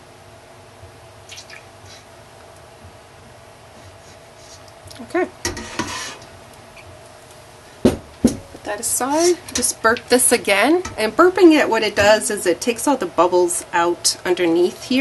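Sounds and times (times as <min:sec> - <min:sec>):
liquid trickling and dripping: 0:01.2 - 0:02.0.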